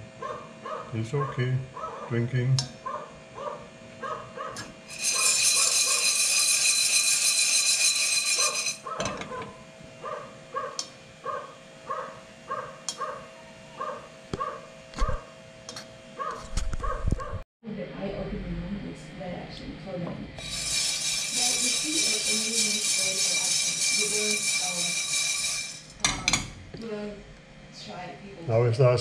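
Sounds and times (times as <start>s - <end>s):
puppy yelping: 1.8s - 2.1s, 2.8s - 4.6s, 8.8s - 15.2s, 16.2s - 17.4s.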